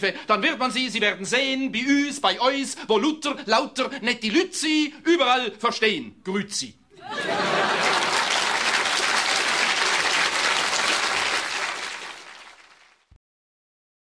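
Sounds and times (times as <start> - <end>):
audience applauding: 7.2 - 13.1.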